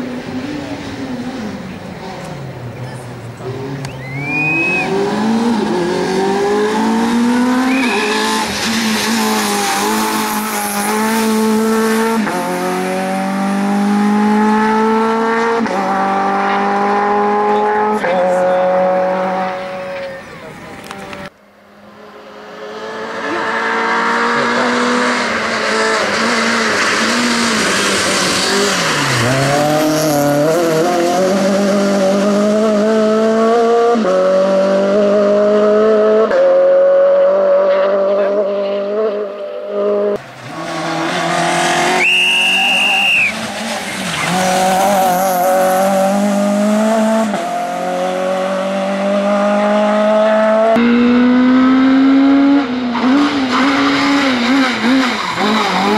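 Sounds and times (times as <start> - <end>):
rally car engine revving: 0.0 - 55.9
brief high squeal: 7.6 - 8.4.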